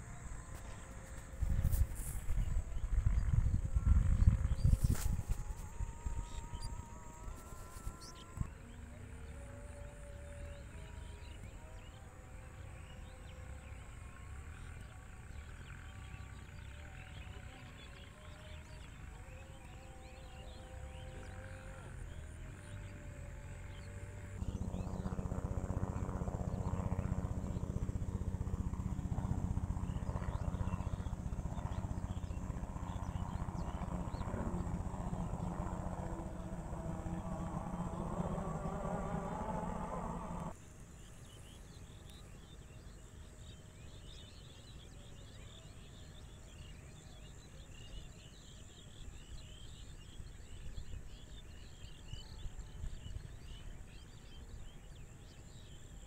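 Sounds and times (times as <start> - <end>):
low engine hum: 0.0 - 42.9.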